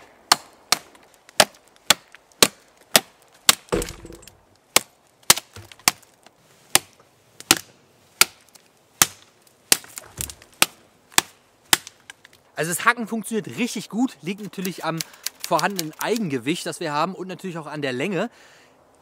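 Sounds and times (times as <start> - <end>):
knife chopping into wood: 0.3 - 6.0.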